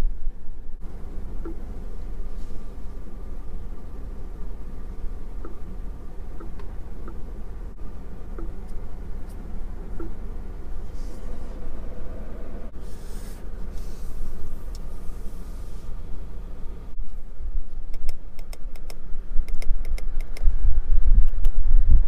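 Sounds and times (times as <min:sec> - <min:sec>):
car cabin hum: 0:00.0 - 0:17.9
soft airy hiss: 0:01.8 - 0:05.3, 0:10.6 - 0:16.2.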